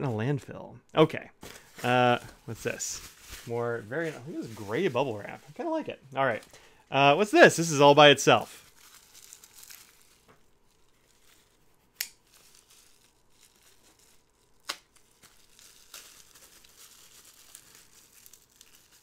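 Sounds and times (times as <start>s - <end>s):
bubble wrap crinkling: 1.4s - 19.0s
knife cutting bubble wrap: 8.7s - 19.0s.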